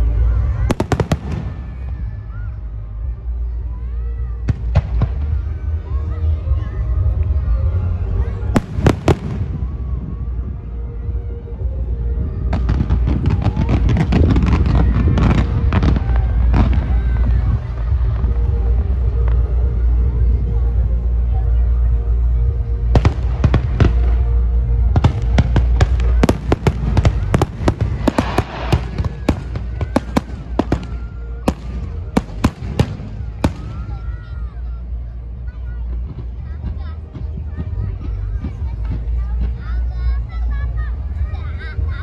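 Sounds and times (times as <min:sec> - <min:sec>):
fireworks popping and crackling: 0:00.0 - 0:02.6, 0:08.4 - 0:10.4, 0:11.6 - 0:20.8, 0:22.6 - 0:39.9
low rumble: 0:00.0 - 0:42.0
loud firework bangs: 0:12.5 - 0:18.2, 0:23.0 - 0:34.2.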